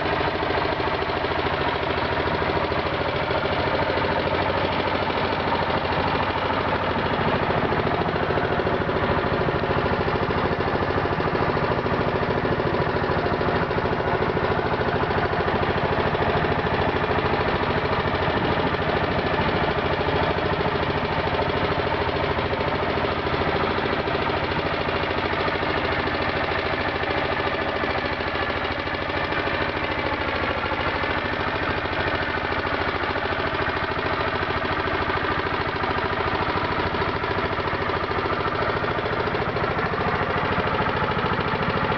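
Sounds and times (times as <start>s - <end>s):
boat engine droning: 0.0s - 41.9s.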